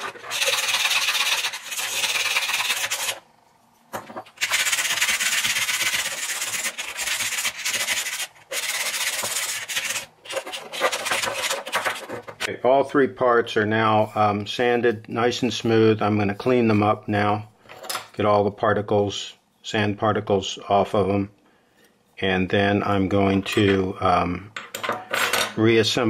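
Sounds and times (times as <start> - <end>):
sandpaper scratching on metal: 0.0 - 3.2, 4.4 - 12.2.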